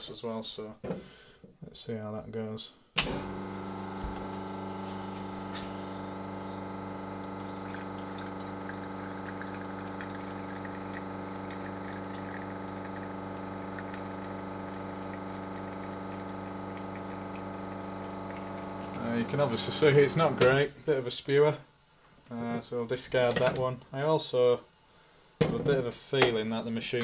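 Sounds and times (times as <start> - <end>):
espresso machine pump humming: 3.0 - 20.5
coffee spitting into glass: 7.0 - 19.7.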